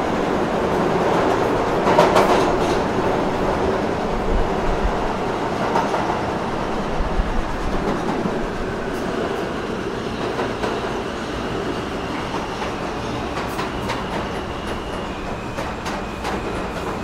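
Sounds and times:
subway train rumbling: 0.0s - 17.0s.

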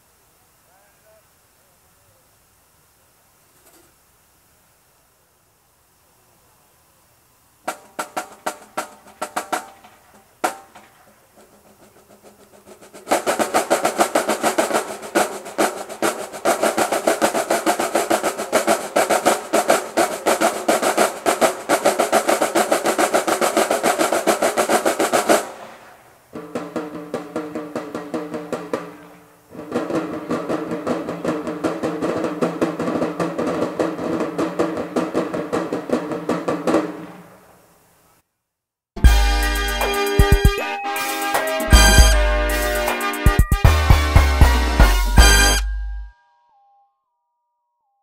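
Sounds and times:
marching drumline drumming: 7.7s - 25.7s, 26.3s - 37.2s, 39.0s - 40.6s, 41.4s - 45.7s.

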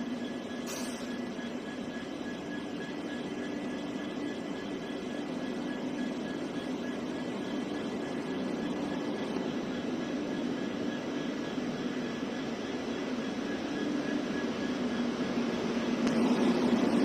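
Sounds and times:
electric locomotive humming: 0.0s - 17.0s.

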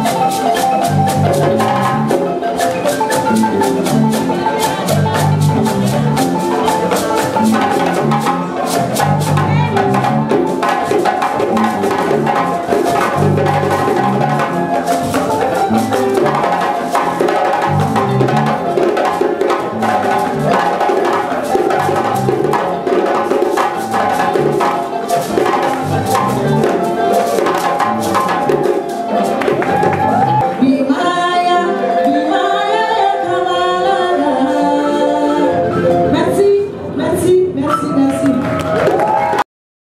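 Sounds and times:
hand drums: 0.0s - 30.6s
balafon melody: 0.0s - 39.4s.

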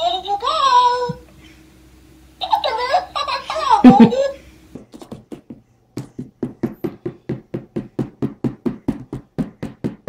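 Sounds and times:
rapid even knocking: 4.8s - 10.0s.

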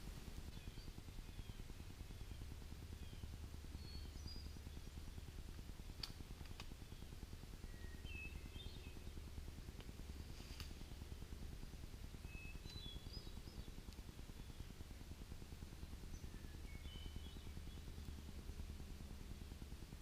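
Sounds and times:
low steady rumble: 0.0s - 20.0s
sharp clicks: 6.0s - 6.8s
faint high chirps: 12.2s - 13.7s, 16.0s - 18.0s.

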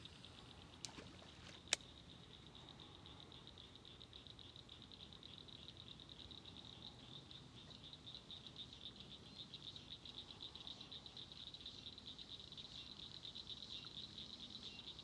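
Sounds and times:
chorus of small calling animals: 0.0s - 15.0s.

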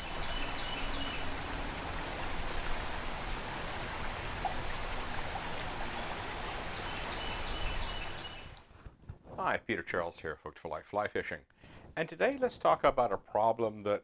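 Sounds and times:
stream rushing over rocks: 0.0s - 8.6s.

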